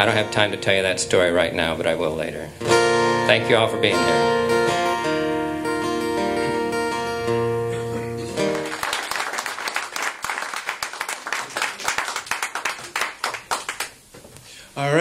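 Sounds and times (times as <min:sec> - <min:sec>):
acoustic guitar notes ringing: 0:00.0 - 0:08.7
audience clapping: 0:08.4 - 0:14.0.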